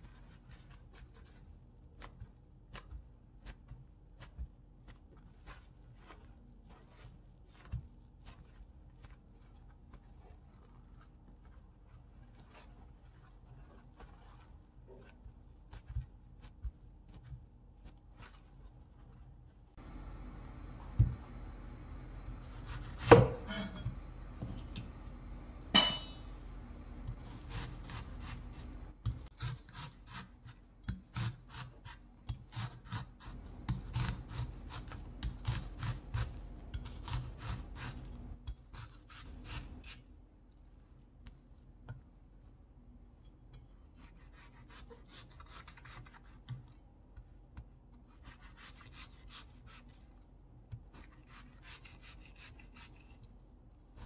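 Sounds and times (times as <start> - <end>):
knife slicing onion: 19.8 - 40.1, 43.8 - 46.8, 47.5 - 50.1, 50.7 - 53.2
knife knocking on wooden board: 23.0 - 24.6.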